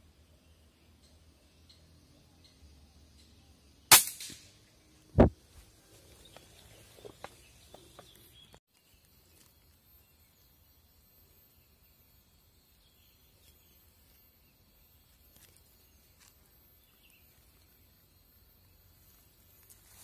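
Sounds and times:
rifle shot: 3.9 - 4.5.

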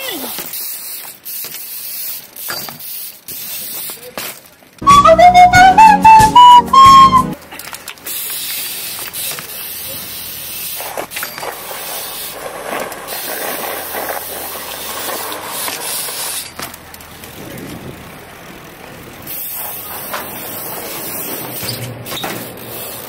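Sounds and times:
bike tyres rushing on paving: 0.0 - 5.0, 5.7 - 23.0.

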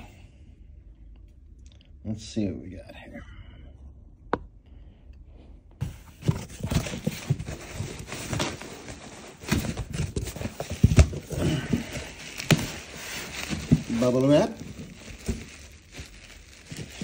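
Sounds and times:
cardboard scraping and rustling: 5.8 - 17.0.

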